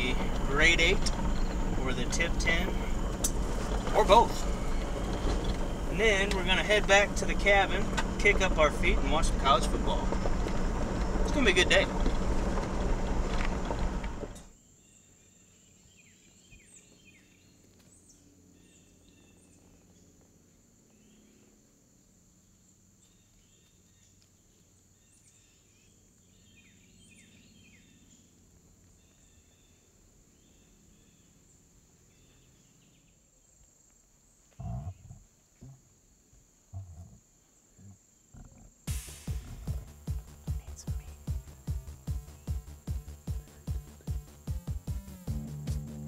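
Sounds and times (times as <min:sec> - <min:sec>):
high-pitched insect drone: 0:00.0 - 0:14.2
vehicle cabin noise: 0:00.0 - 0:14.5, 0:38.9 - 0:46.0
small birds chirping: 0:00.0 - 0:20.2, 0:22.5 - 0:35.8, 0:39.4 - 0:45.2.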